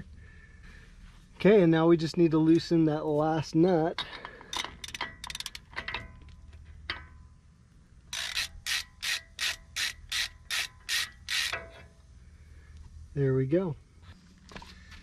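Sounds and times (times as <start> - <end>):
ratchet clicking: 4.5 - 5.9, 8.1 - 11.6.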